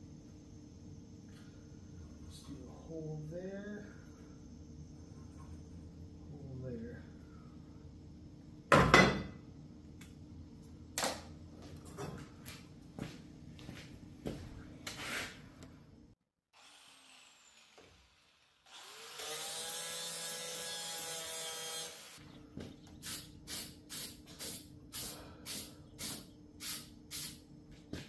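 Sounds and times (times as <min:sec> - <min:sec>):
power tool whining: 0:16.6 - 0:22.3.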